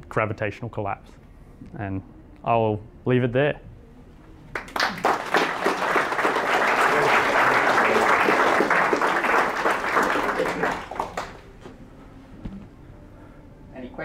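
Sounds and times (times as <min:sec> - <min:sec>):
audience applauding: 0:04.5 - 0:11.6.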